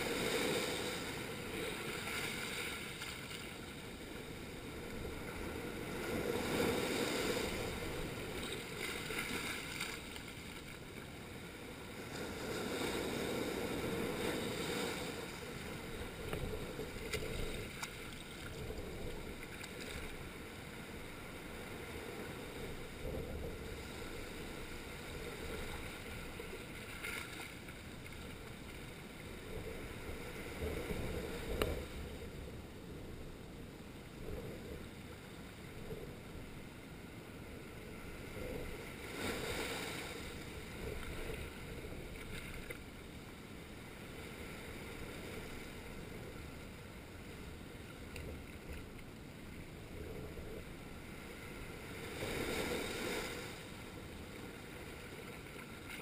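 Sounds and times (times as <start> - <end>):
waves washing on rocky shore: 0.0 - 27.7, 37.9 - 42.1.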